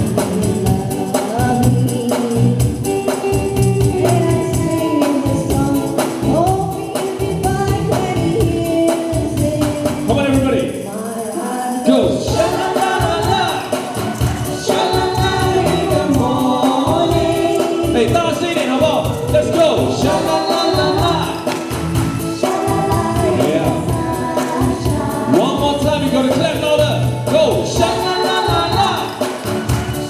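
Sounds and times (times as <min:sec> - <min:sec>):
woman singing into a microphone: 0:00.0 - 0:10.1, 0:10.8 - 0:18.1, 0:19.9 - 0:21.5, 0:22.2 - 0:25.7, 0:27.7 - 0:29.2
maracas shaking: 0:00.0 - 0:30.0
pop band backing: 0:00.0 - 0:30.0.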